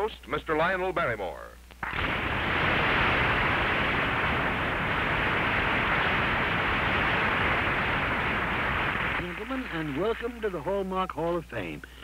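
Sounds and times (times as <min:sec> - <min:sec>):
audience applauding: 0:03.6 - 0:10.6.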